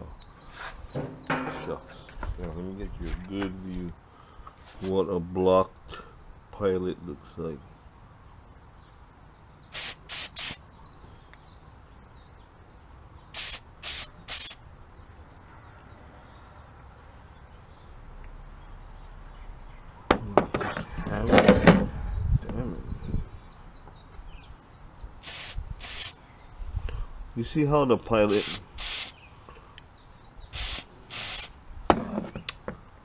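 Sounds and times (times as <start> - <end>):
aerosol spray hisses: 9.7 - 10.6, 13.4 - 14.6, 25.2 - 26.2, 28.3 - 29.2, 30.5 - 31.6.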